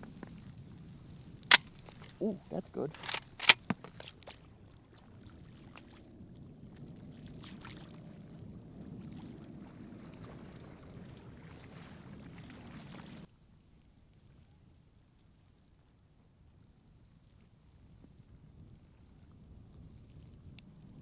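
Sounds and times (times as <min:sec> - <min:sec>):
water sloshing from wading: 0:01.5 - 0:08.4, 0:09.0 - 0:13.3.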